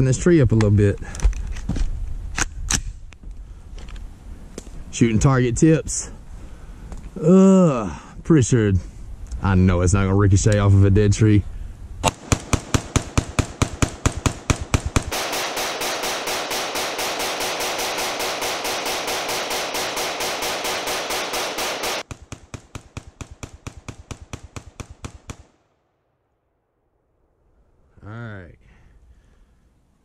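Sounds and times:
rifle firing rapid shots: 0:12.1 - 0:25.5.

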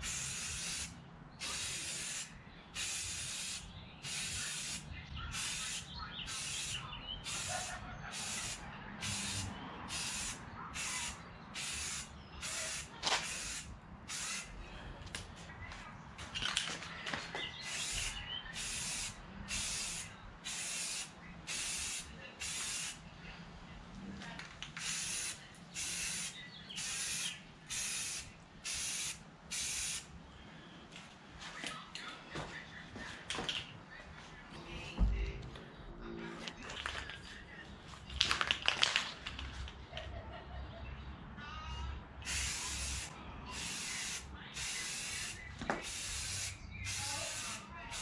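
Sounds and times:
spray paint can hissing: 0:00.0 - 0:14.6, 0:17.6 - 0:23.0, 0:24.8 - 0:30.1, 0:42.2 - 0:48.0.

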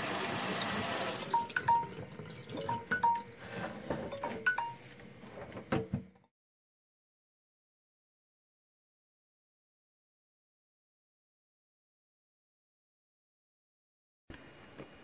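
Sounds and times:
tap water running into sink: 0:00.0 - 0:03.4
water dripping plinks: 0:01.2 - 0:03.4.

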